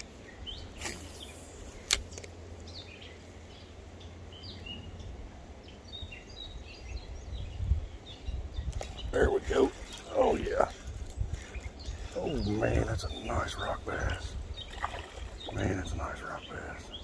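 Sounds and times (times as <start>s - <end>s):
small birds chirping: 0.0s - 17.0s
steady low rumble: 0.0s - 17.0s
sharp click: 1.8s - 2.3s.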